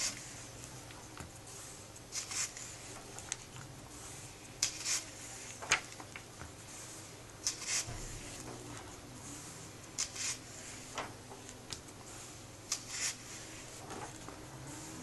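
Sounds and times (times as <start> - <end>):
pages being turned: 2.1 - 3.6, 4.6 - 6.3, 7.4 - 8.6, 10.0 - 11.6, 12.7 - 15.0.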